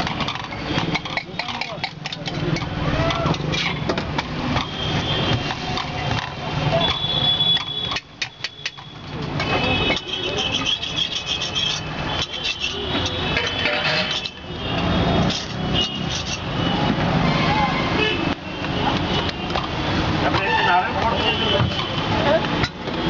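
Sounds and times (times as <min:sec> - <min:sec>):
people talking: 0:20.2 - 0:22.6.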